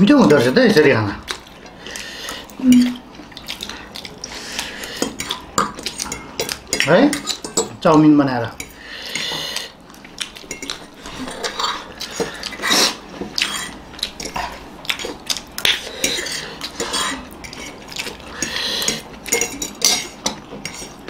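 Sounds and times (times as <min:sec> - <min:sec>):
forks clinking on plates: 0:16.0 - 0:21.0.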